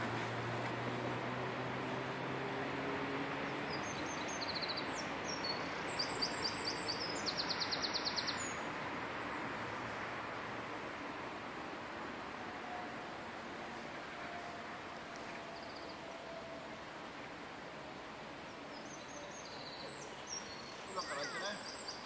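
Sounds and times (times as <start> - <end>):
outdoor background hiss: 0.0 - 22.0
songbird chirping and trilling: 3.4 - 8.7, 18.5 - 22.0.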